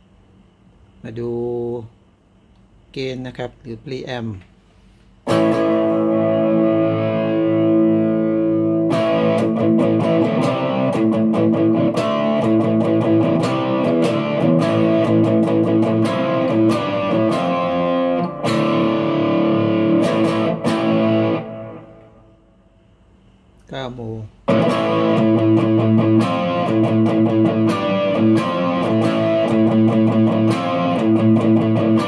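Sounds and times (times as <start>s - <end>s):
distorted electric guitar chords: 5.3s - 22.6s, 24.4s - 32.0s.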